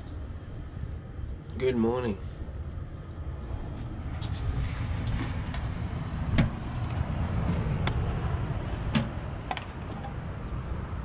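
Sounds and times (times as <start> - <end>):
steady low rumble: 0.0 - 11.0
sharp knocks: 6.3 - 6.8, 8.9 - 10.2.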